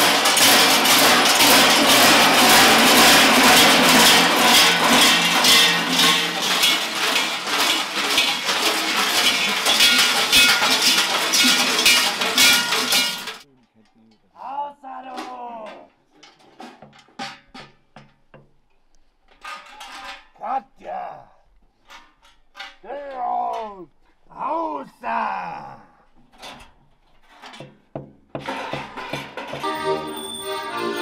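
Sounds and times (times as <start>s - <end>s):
large bells clanging: 0.0s - 13.4s, 29.4s - 31.0s
voices: 13.5s - 15.9s, 22.8s - 26.0s.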